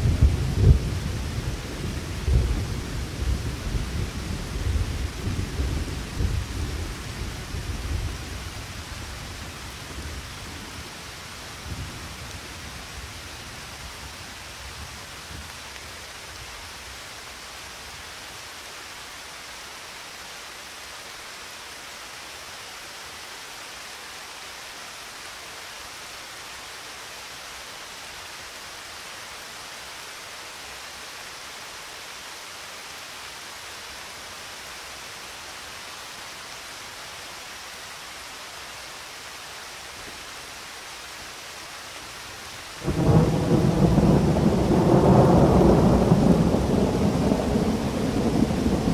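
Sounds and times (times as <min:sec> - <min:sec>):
rain hissing: 0:00.0 - 0:48.9
thunder rumbling: 0:42.8 - 0:48.9.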